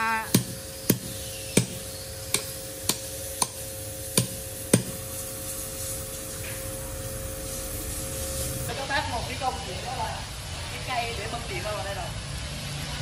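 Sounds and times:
steady machine hum: 0:00.0 - 0:10.8
hammer striking steel spikes: 0:00.1 - 0:05.1.

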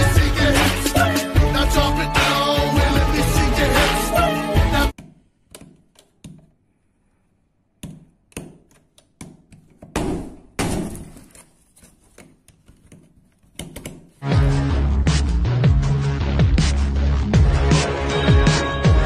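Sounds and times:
heavy thuds through plasterboard: 0:09.9 - 0:11.3.

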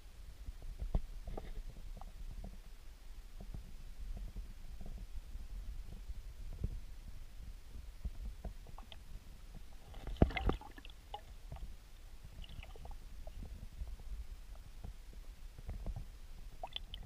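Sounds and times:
underwater stream rumble: 0:03.4 - 0:17.0
stones knocking underwater: 0:09.9 - 0:11.6.

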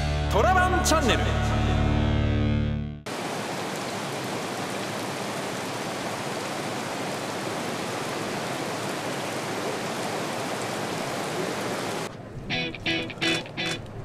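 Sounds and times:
heavy rain falling: 0:03.1 - 0:13.8.

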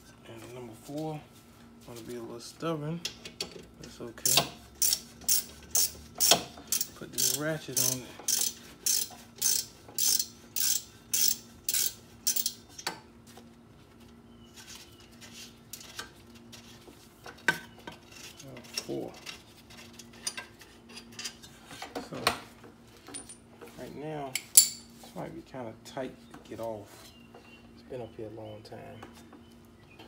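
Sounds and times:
hand ratchet clicking: 0:04.2 - 0:12.6
metal tools clinking: 0:23.0 - 0:23.5.

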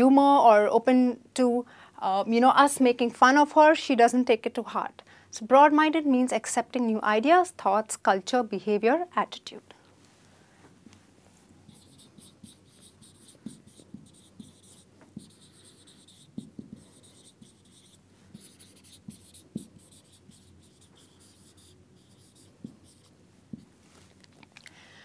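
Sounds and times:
marker tip tapping: 0:11.7 - 0:21.2
marker squeaking on whiteboard: 0:11.7 - 0:23.7.

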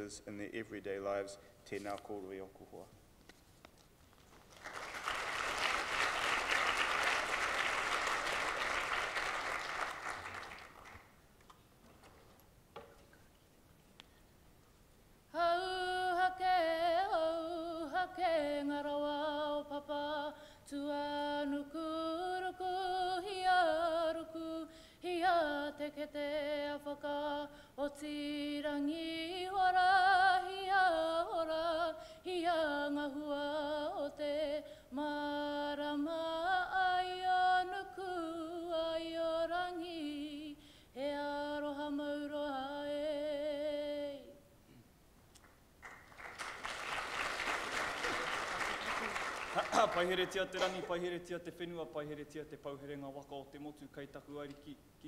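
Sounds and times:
woman singing a slow chant: 0:15.3 - 0:44.5.

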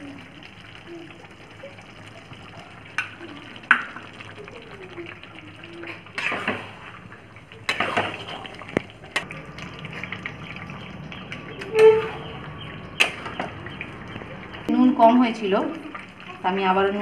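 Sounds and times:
spatula stirring curry in a pan: 0:05.9 - 0:06.9.

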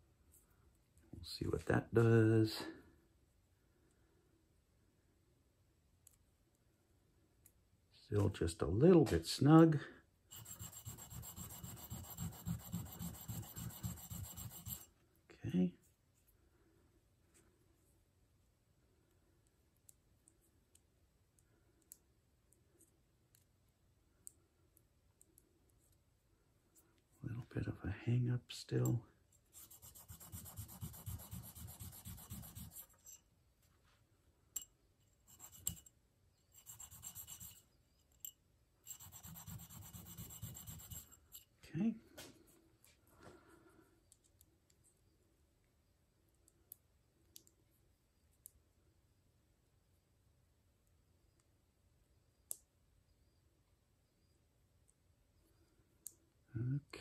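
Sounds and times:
metal rubbing on sharpening stone: 0:10.3 - 0:14.9, 0:29.5 - 0:33.2, 0:35.3 - 0:35.9, 0:36.5 - 0:37.7, 0:38.9 - 0:41.5.

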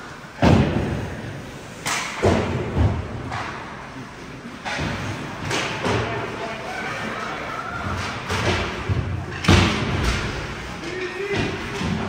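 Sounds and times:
bangs against hockey boards: 0:07.9 - 0:12.0.

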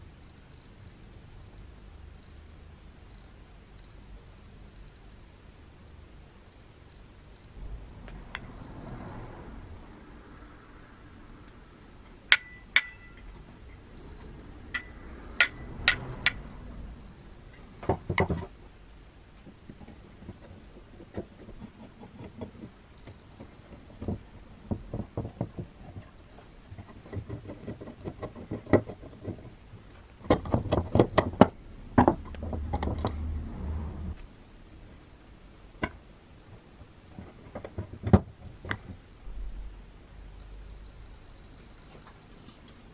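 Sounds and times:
low rubbing: 0:07.6 - 0:12.1.

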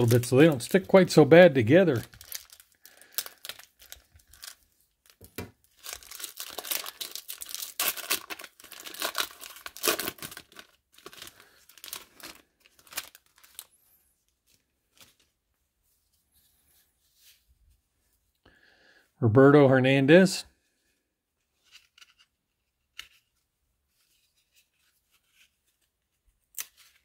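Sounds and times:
foil wrapper crinkling: 0:00.0 - 0:13.7.

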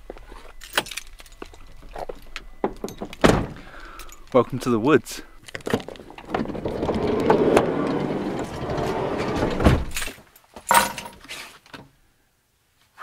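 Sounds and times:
sliding van door rumbling: 0:06.1 - 0:10.0.

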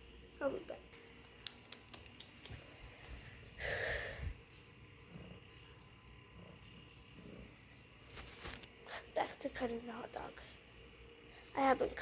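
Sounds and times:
breathy puff of air: 0:03.6 - 0:04.4.

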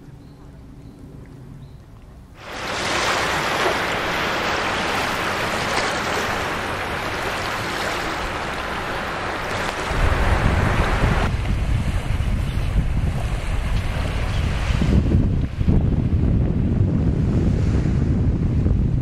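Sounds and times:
wind rumble on microphone: 0:00.0 - 0:19.0
small waves washing on sand: 0:02.4 - 0:15.9.

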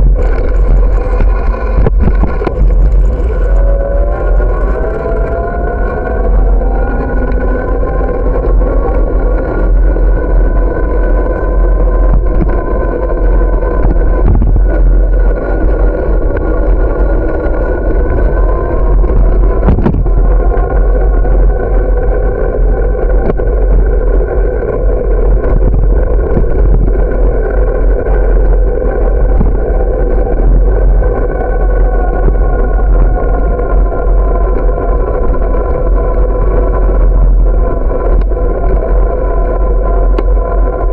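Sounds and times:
steady droning hum: 0:00.0 - 0:40.9
wind rumble on microphone: 0:00.0 - 0:40.9.

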